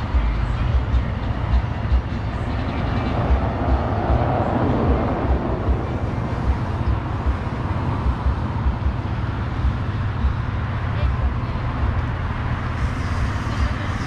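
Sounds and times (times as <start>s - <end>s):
low uneven rumble: 0.0s - 14.0s
traffic noise: 0.0s - 14.0s
people talking: 4.1s - 14.0s.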